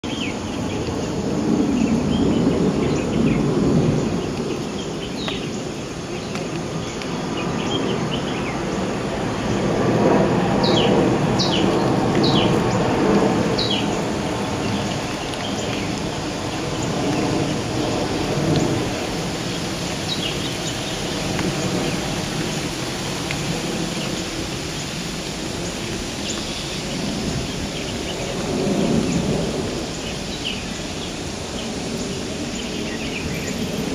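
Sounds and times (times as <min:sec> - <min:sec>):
steady rain: 0:00.0 - 0:33.9
birds chirping: 0:10.6 - 0:22.8.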